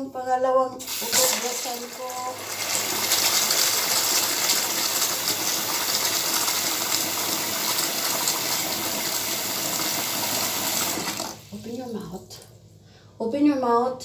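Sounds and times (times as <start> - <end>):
water tap running: 0.8 - 11.9.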